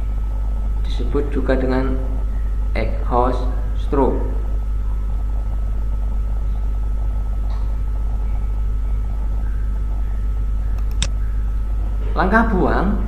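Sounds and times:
steady low hum: 0.0s - 13.0s
sharp click: 10.8s - 11.2s.

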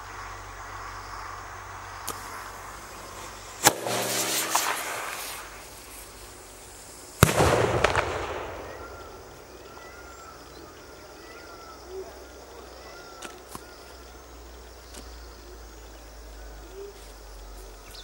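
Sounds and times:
firecracker bang echoing: 3.6s - 5.9s, 7.2s - 9.6s.

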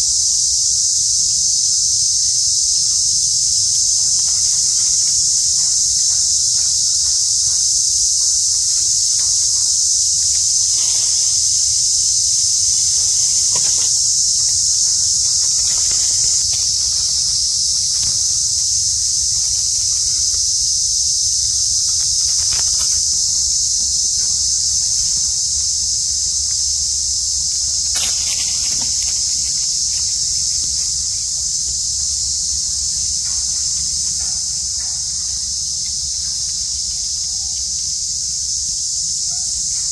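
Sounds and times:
insect chorus drone: 0.0s - 39.9s
faint rustles: 8.3s - 23.4s, 27.9s - 30.8s.

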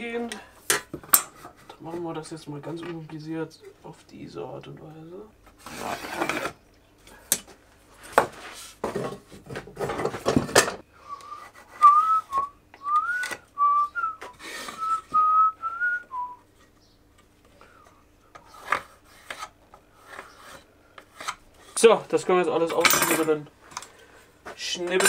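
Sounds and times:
wooden boards knocking and rattling: 8.2s - 10.8s
person whistling a tune: 11.0s - 16.4s.

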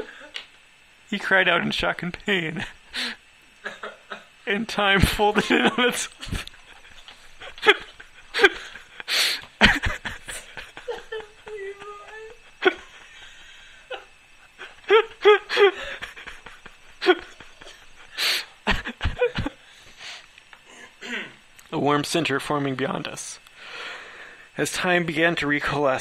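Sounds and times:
person laughing and breathing: 0.0s - 0.4s, 5.0s - 21.4s.

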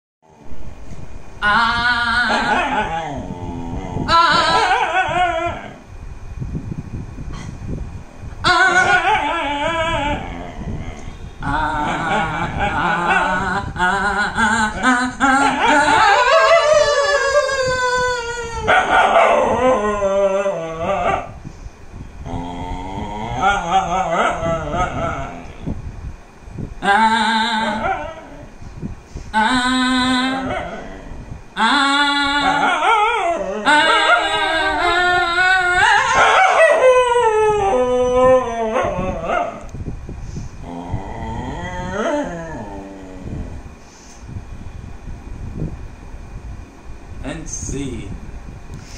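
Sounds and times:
dog howling: 1.4s - 5.8s, 8.4s - 21.4s, 22.3s - 25.6s, 26.8s - 28.5s, 29.4s - 39.7s, 40.6s - 43.6s.

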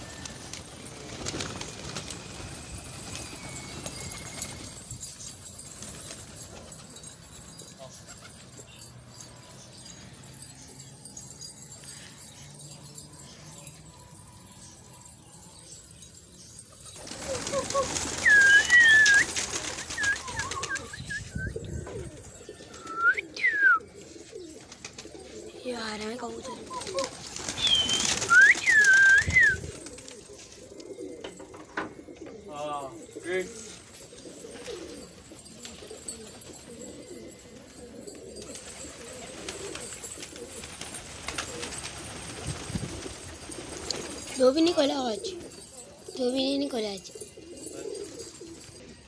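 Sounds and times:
pigeon wings clattering: 0.0s - 8.6s, 16.9s - 23.1s, 26.2s - 32.3s, 37.6s - 46.1s
pigeons cooing: 0.0s - 49.0s
whistle: 18.2s - 21.6s, 27.6s - 29.6s.

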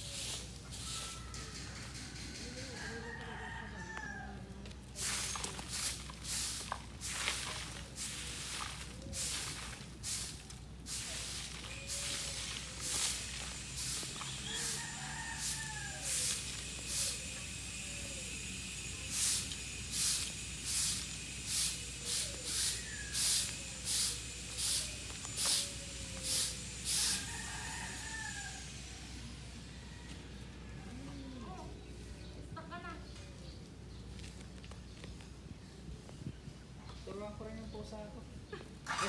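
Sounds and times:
short hissing pulses: 0.0s - 2.5s, 5.0s - 29.8s.

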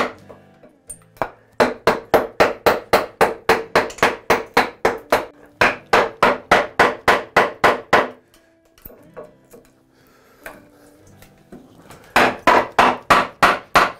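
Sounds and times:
wooden mallet striking a chisel: 0.0s - 8.2s, 12.2s - 13.9s.

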